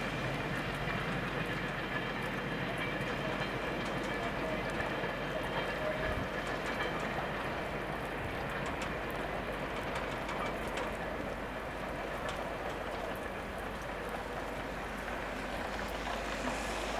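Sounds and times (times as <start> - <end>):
freight train wagons rolling: 0.0 - 16.9
light ticks: 6.4 - 15.1.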